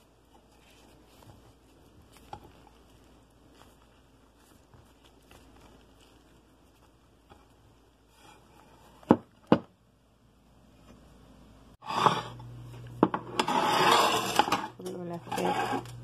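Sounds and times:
rustling: 0.0s - 9.1s.

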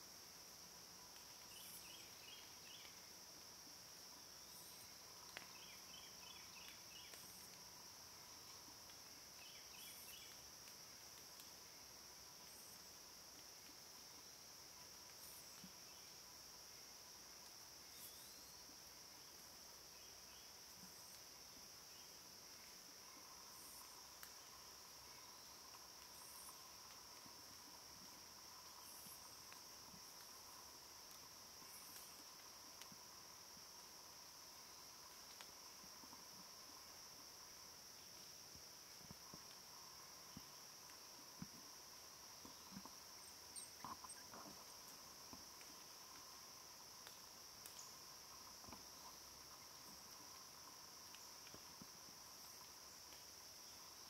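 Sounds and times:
insect chorus drone: 0.0s - 54.0s
short insect chirps: 1.1s - 3.1s, 4.4s - 11.6s, 17.8s - 54.0s
faint click: 5.3s - 7.6s, 35.3s - 35.5s, 47.0s - 47.9s.

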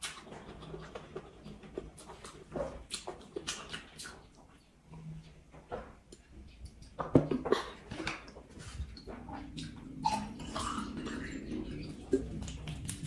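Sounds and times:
person gulping water: 6.8s - 13.0s.

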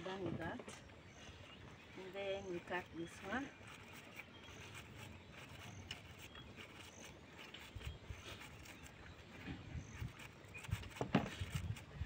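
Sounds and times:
knife cutting cabbage: 9.9s - 12.0s.

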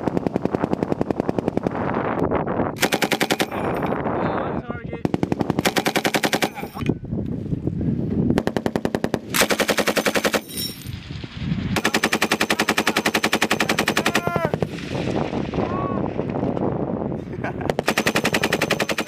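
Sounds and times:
machine gun firing bursts: 0.0s - 1.9s, 2.8s - 3.8s, 5.0s - 6.8s, 8.4s - 10.5s, 11.7s - 14.3s, 17.7s - 19.0s.

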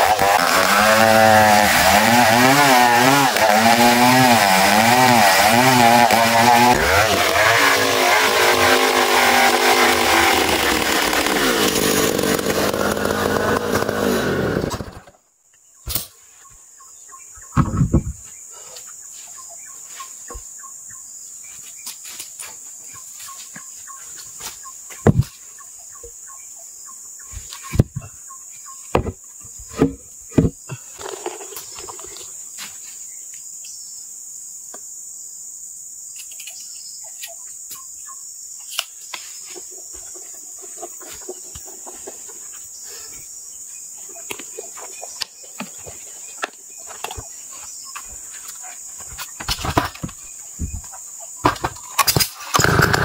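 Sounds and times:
heavy wooden thumps: 17.5s - 18.3s, 28.9s - 30.6s.

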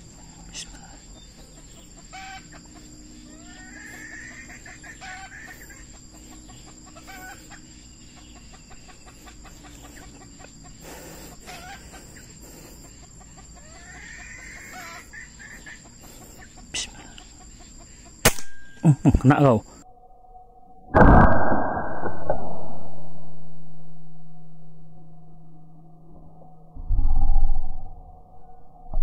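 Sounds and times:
rooster crowing: 1.6s - 12.2s, 12.9s - 16.1s
burst of noise: 20.9s - 23.2s.

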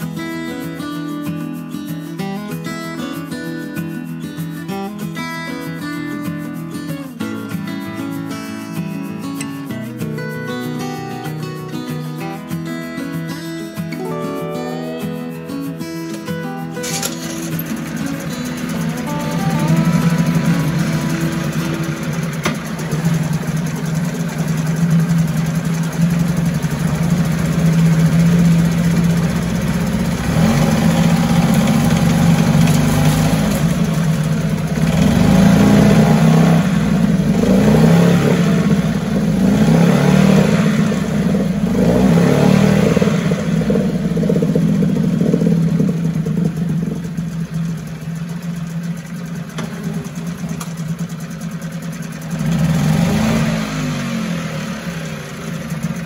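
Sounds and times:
outboard motor revving: 16.8s - 56.0s.

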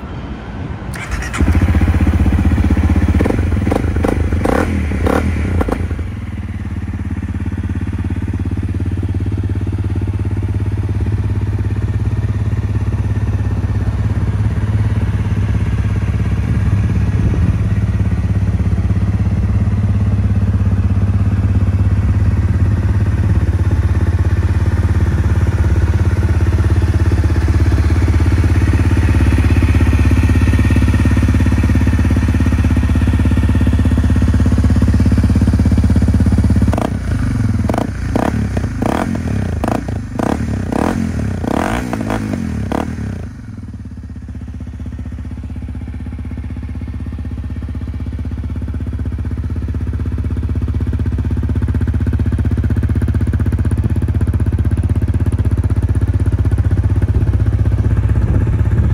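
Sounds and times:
motorcycle engine revving and idling: 0.9s - 58.9s.

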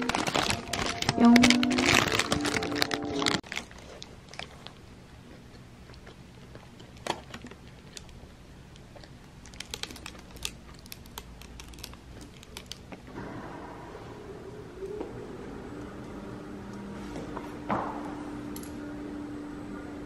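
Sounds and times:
paper wrapper crinkling: 0.0s - 4.9s, 9.4s - 13.0s
low room hum: 0.0s - 20.0s
crunching toasted bread: 1.8s - 13.1s.

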